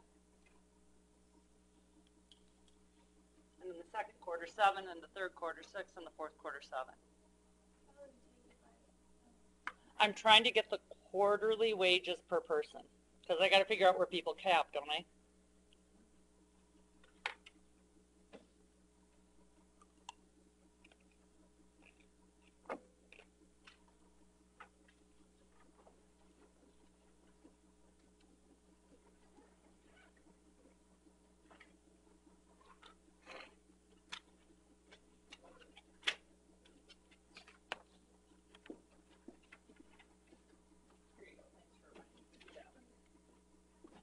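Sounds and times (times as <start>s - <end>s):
steady low hum: 0.0s - 44.0s
faint clicks and taps: 20.8s - 41.2s.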